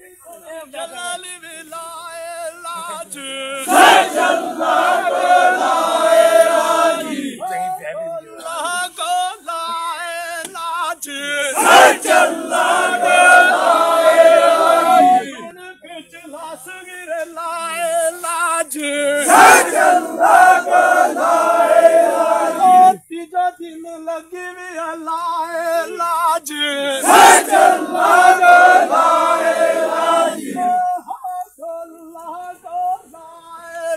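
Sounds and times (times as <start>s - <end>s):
men chanting: 0.5s - 23.1s, 24.2s - 33.9s
crowd shouting together: 3.6s - 7.8s, 11.4s - 15.5s, 19.1s - 23.0s, 26.8s - 31.2s
man singing chant lines: 7.4s - 11.7s, 14.8s - 19.2s, 22.3s - 27.1s, 30.5s - 33.9s.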